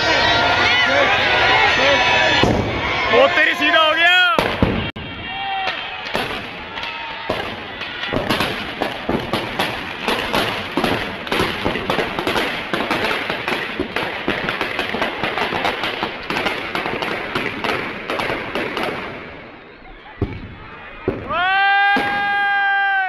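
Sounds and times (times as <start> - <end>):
firecrackers banging rapidly: 0.2 - 22.8.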